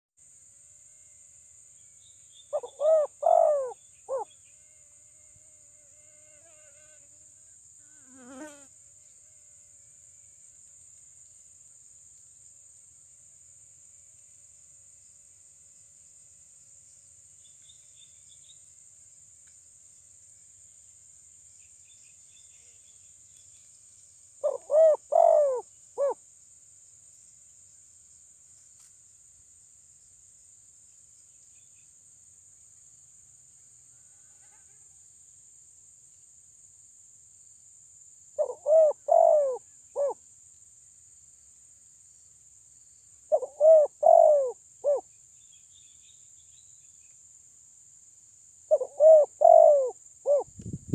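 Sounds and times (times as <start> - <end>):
dove cooing: 2.6 - 4.3, 24.4 - 26.2, 38.4 - 40.2, 43.3 - 45.0, 48.7 - 50.5.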